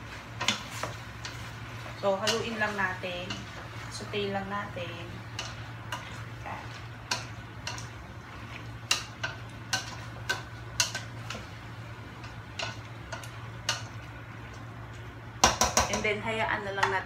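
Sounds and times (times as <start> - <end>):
steady low hum: 0.0 - 17.0
spatula clacking against pot: 7.0 - 8.0, 8.8 - 11.5, 12.2 - 14.0, 15.4 - 16.0.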